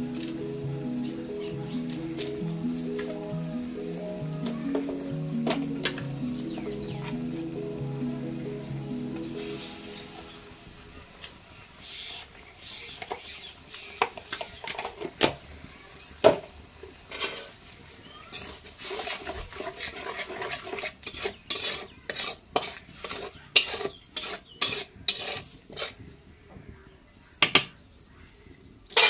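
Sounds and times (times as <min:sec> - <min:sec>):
metal spatula scraping a pan: 0:18.4 - 0:26.0.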